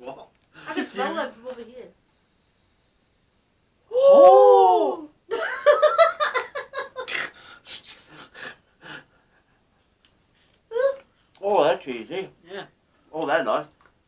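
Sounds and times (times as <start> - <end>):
person crying out: 3.9 - 5.1.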